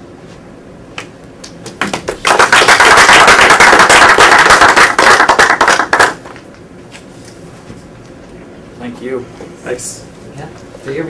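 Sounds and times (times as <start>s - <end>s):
audience applauding: 2.1s - 6.3s.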